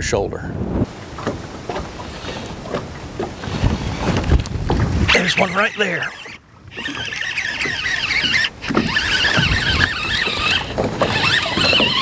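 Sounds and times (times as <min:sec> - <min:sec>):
fishing reel gear whine: 0:05.1 - 0:12.0.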